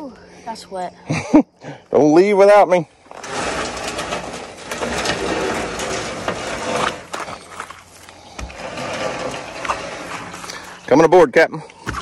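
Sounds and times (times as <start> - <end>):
crackling rustle and scraping: 2.5 - 12.0.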